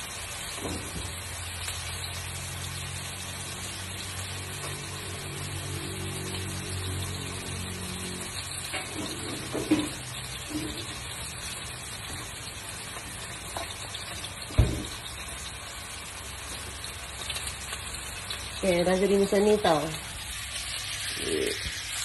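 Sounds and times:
food sizzling in a frying pan: 0.0s - 22.0s
sharp thump: 14.5s - 15.0s.

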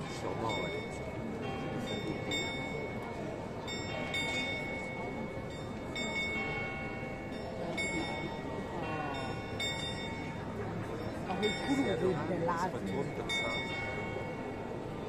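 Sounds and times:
clock bell tolling: 0.0s - 15.0s.

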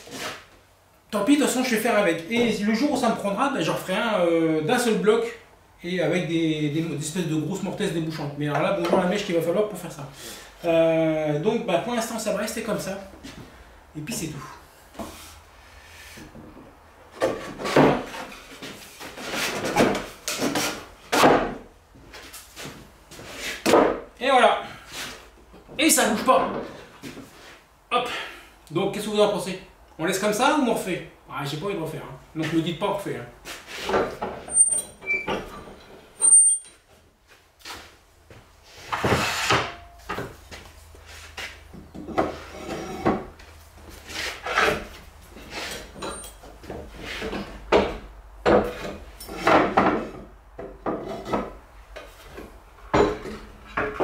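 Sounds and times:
wood scraping against wood: 0.0s - 0.6s, 13.1s - 24.0s, 26.5s - 27.7s, 33.4s - 34.8s, 38.6s - 54.0s.

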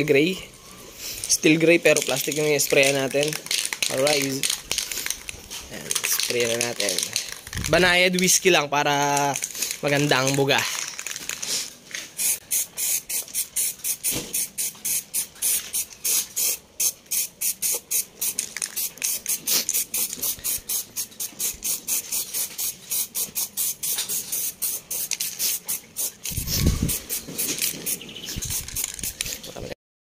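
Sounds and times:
aerosol spray hissing bursts: 12.2s - 29.4s.

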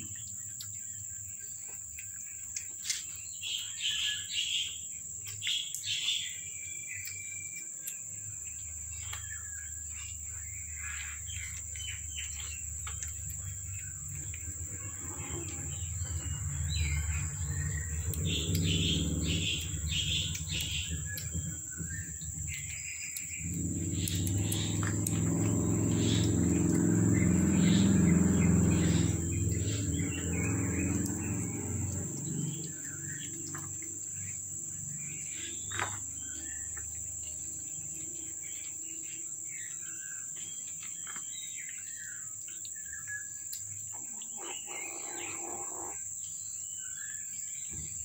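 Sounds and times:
birds chirping: 0.0s - 48.0s
high insect drone: 3.2s - 48.0s
low hum: 8.5s - 39.7s.

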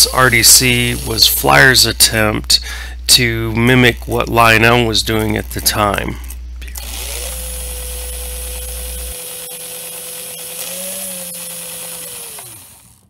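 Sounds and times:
electric motor whine: 6.7s - 13.0s.

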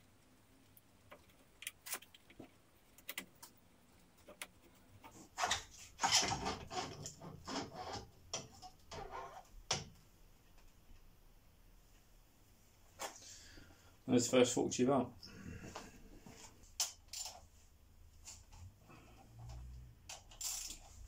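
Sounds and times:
metal parts clicking: 20.1s - 21.0s.

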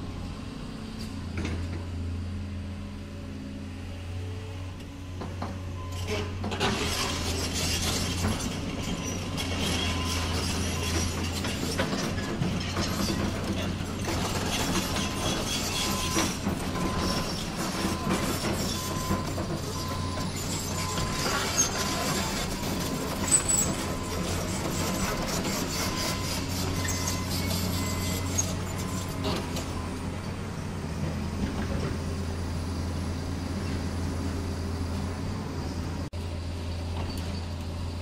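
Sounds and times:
toy excavator motors whirring: 19.9s - 29.1s.

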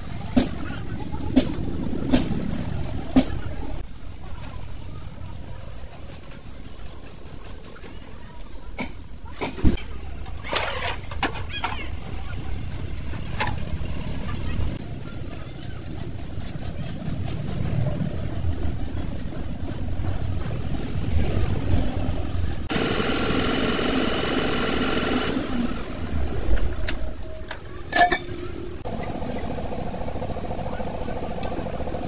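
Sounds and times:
vehicle engine rumble: 25.3s - 32.0s
metallic clank: 27.9s - 28.5s.

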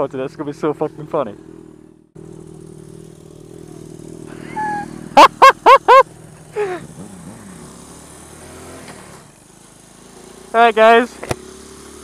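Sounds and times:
motorcycle engine idling: 0.0s - 12.0s
falling cry: 4.3s - 6.0s
high-pitched whoops: 4.4s - 4.9s.

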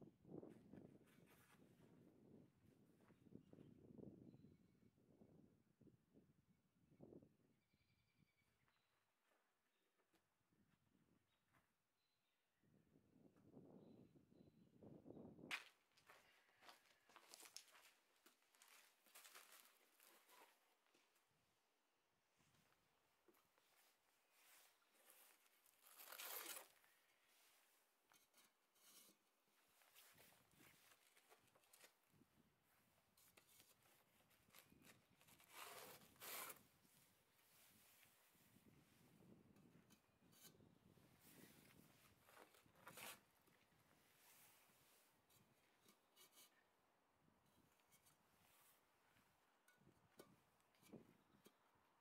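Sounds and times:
faint scuffs and rustles: 0.4s - 2.0s, 15.5s - 21.4s, 22.3s - 39.3s, 41.1s - 46.6s
short scraping sounds: 34.6s - 36.6s.

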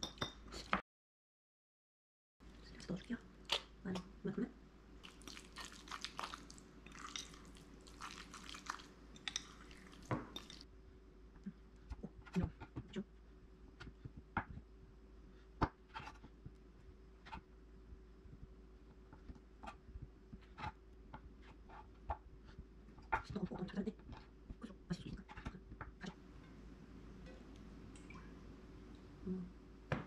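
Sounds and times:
fork stirring in ceramic bowl: 5.0s - 10.6s.

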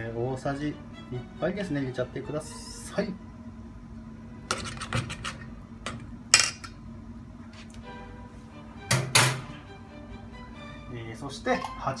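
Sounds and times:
faint background music: 0.0s - 3.4s, 7.8s - 12.0s.

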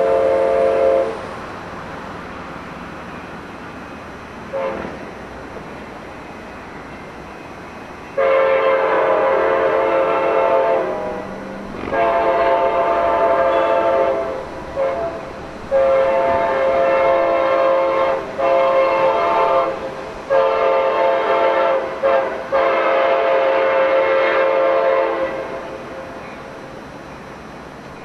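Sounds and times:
locomotive air horn blasts: 0.0s - 1.3s, 4.5s - 5.1s, 8.2s - 25.8s.

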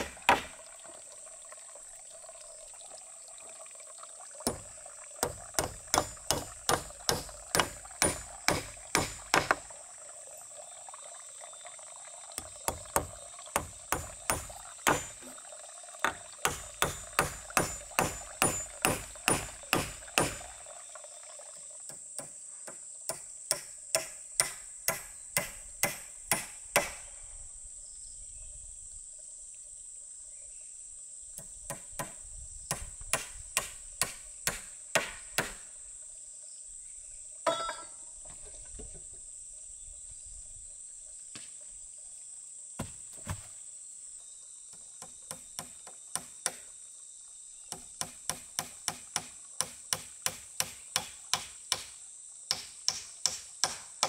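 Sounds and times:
hammer blows on wood: 16.1s - 20.6s.

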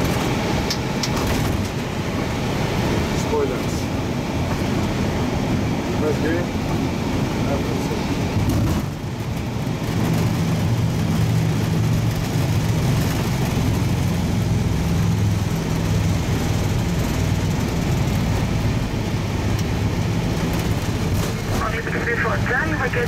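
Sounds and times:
aircraft engine noise: 0.0s - 23.0s
wheels rolling on runway: 7.7s - 21.7s.

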